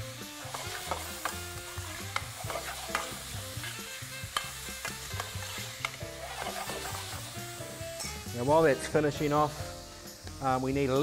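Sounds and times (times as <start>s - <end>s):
meat and onion sizzling in pan: 0.0s - 11.0s
metal spoon scraping pan: 0.4s - 7.3s.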